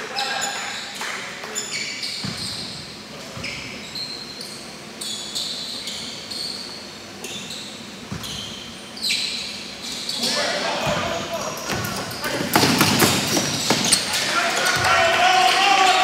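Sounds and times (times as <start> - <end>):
sneakers squeaking: 0.0 - 15.1
basketball dribbling thumps: 11.7 - 14.0.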